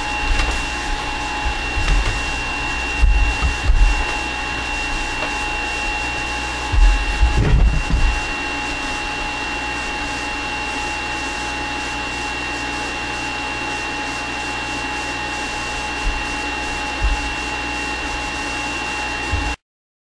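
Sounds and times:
juicer motor whirring: 0.0s - 19.6s
soft bumps: 0.1s - 9.4s, 16.0s - 17.5s.

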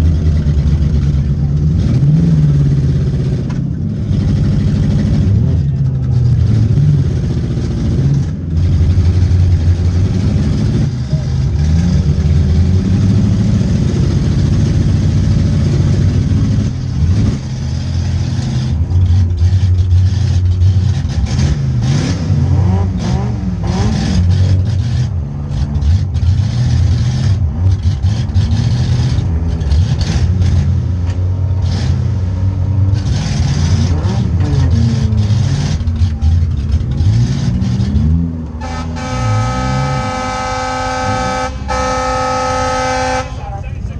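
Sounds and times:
car engine revving: 0.0s - 43.9s
car horn steady chord: 38.6s - 43.8s.

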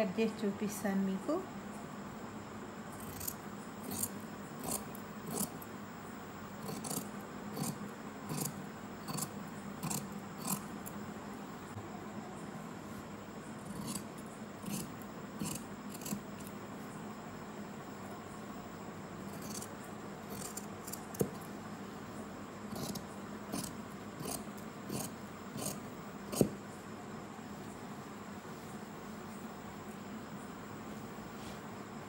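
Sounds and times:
shears snipping cloth: 3.0s - 5.6s, 6.6s - 10.7s, 13.7s - 16.5s.

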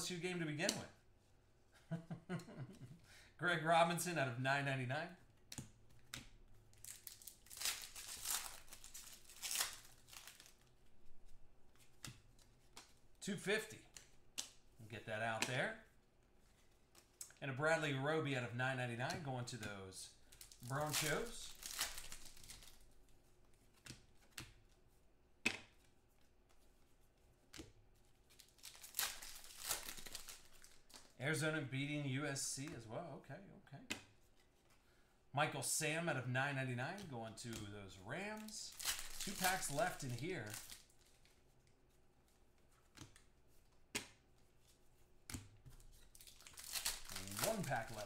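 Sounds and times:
cards and foil pack handled: 6.1s - 13.0s, 20.2s - 23.0s, 28.0s - 31.2s, 38.4s - 43.3s, 43.9s - 48.0s
plastic wrapper crinkling: 6.7s - 11.4s, 20.2s - 23.0s, 28.2s - 31.2s, 38.4s - 41.7s, 45.8s - 48.0s.

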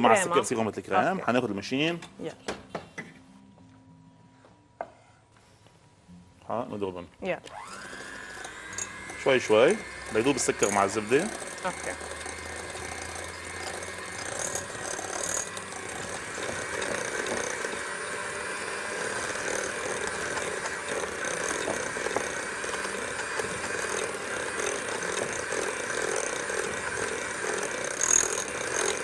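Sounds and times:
electric hand mixer running: 7.4s - 29.0s.

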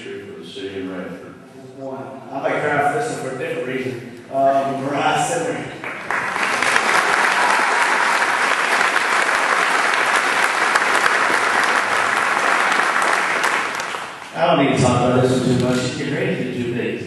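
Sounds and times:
audience applause: 5.8s - 14.3s.

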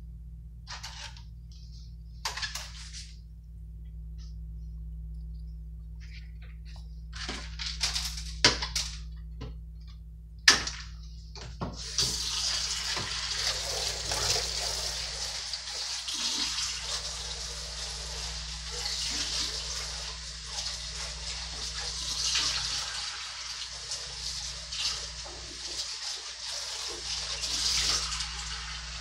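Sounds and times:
water running into sink: 11.8s - 29.0s.

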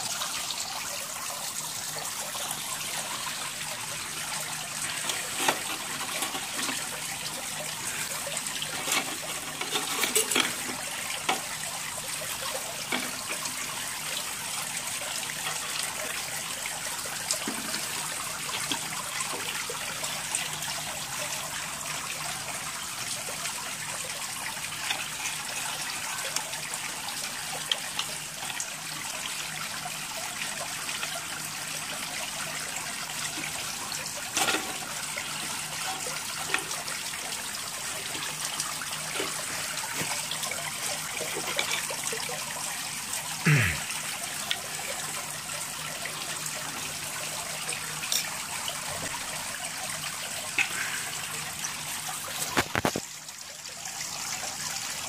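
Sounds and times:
steady hissing noise: 48.8s - 53.4s.

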